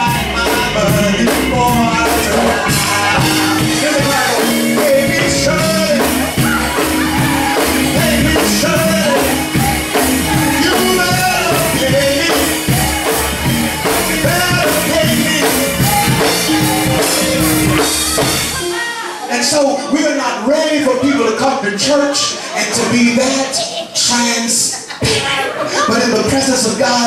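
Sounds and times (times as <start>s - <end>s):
man singing into microphone: 0.0s - 18.0s
drum kit: 0.0s - 19.4s
keyboard: 0.0s - 27.0s.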